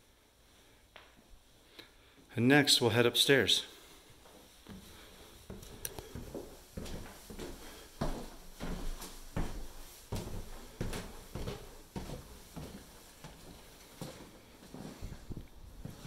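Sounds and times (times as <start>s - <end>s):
footsteps on laminate floor: 4.0s - 16.0s
footsteps climbing stairs: 4.2s - 16.0s.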